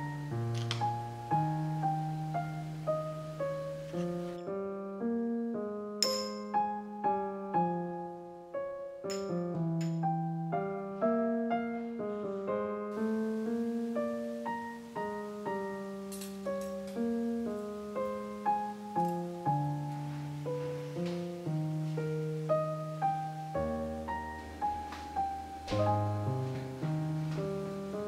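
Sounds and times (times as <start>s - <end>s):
gentle solo piano: 0.0s - 28.0s
light clink: 6.0s - 6.6s, 9.1s - 10.0s.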